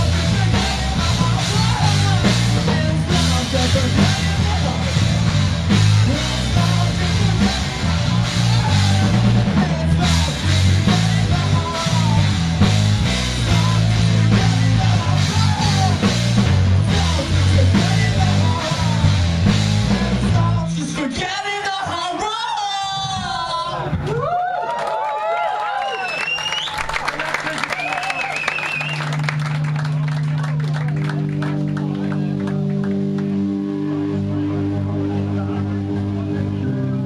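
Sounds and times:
live rock band with vocals: 0.0s - 24.1s, 31.1s - 37.0s
audience cheering and whooping: 23.3s - 32.0s.

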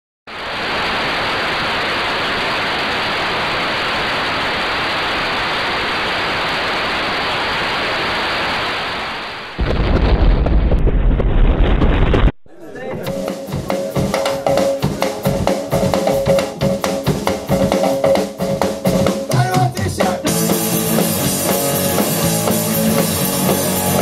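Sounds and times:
television static hiss: 0.3s - 9.6s, 12.6s - 19.3s
music with heavy bass and drums: 13.1s - 24.0s.

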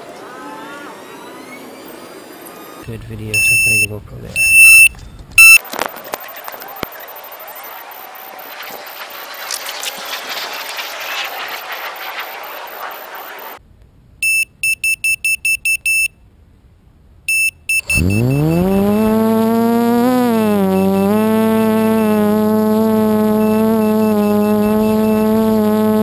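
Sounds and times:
alarm buzzer short high beeps: 3.4s - 5.6s, 17.3s - 19.1s
electric motors whining: 17.8s - 26.0s.

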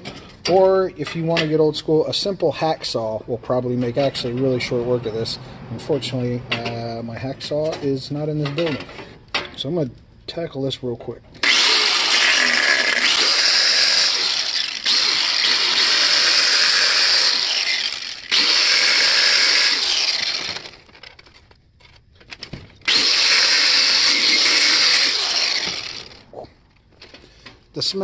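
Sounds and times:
angle grinder cutting plastic: 11.4s - 21.3s, 22.8s - 26.4s.

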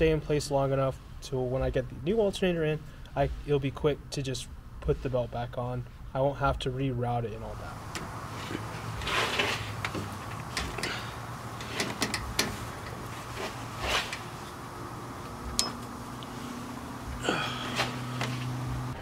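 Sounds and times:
short scrapes: 8.3s - 9.8s, 10.8s - 14.6s
metal clicks and knocks: 9.8s - 11.0s, 11.6s - 13.0s.

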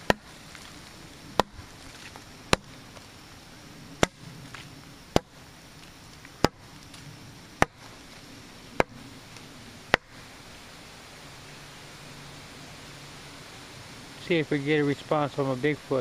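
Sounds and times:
wood knocking on tree trunk: 1.4s - 2.8s, 4.0s - 5.4s, 6.4s - 6.6s, 7.6s - 7.9s.

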